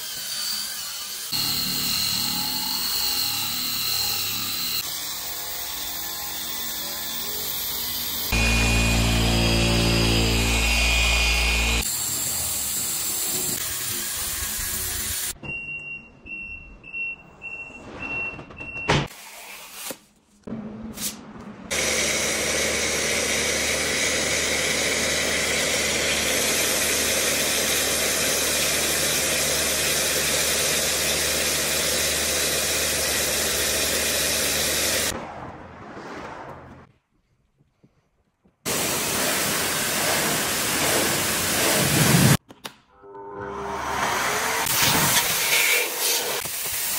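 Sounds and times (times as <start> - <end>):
polisher running: 1.3 - 4.8, 6.0 - 12.2, 21.7 - 35.1
pressure washer hum: 7.6 - 12.0, 38.7 - 42.4.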